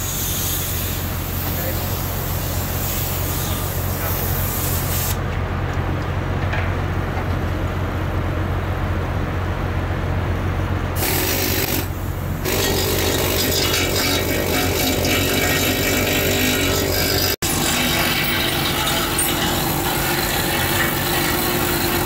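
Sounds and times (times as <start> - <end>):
hiss: 0.0 - 5.2
ship machinery humming: 5.3 - 22.0.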